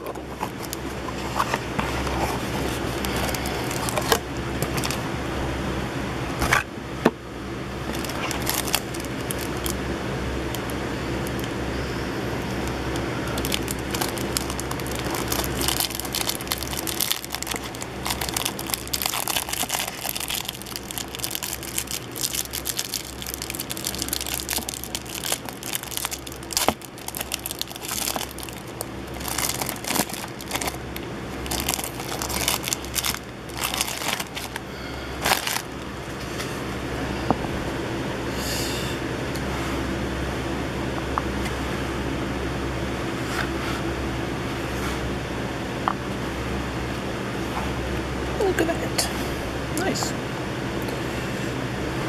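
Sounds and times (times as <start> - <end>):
cellophane wrapper crinkling: 0.0 - 5.0, 7.8 - 9.8, 10.5 - 11.5, 12.3 - 35.9
steady low hum: 0.0 - 52.0.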